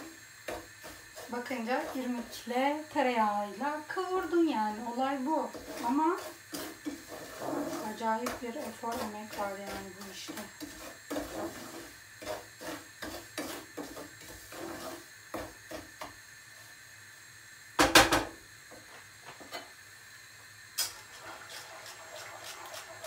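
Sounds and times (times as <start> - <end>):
wooden spoon scraping pot: 0.0 - 3.0, 3.9 - 16.1, 21.0 - 23.0.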